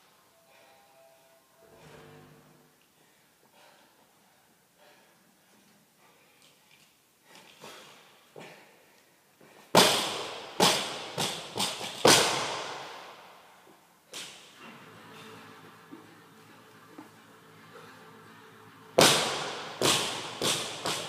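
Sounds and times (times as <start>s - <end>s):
barbell bouncing: 19.0s - 21.0s.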